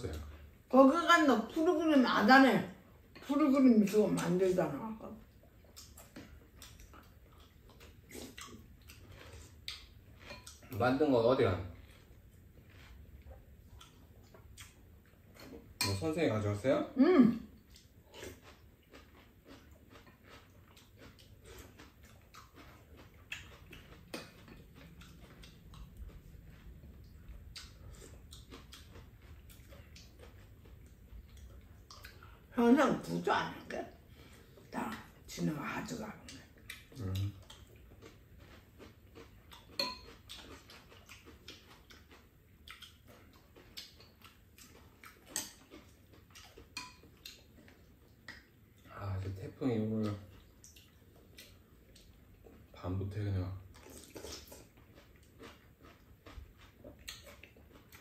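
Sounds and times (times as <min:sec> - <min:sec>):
faint chewing: 0:02.6 - 0:16.7, 0:17.3 - 0:58.0
spoons clicking against bowls: 0:39.8 - 0:40.1.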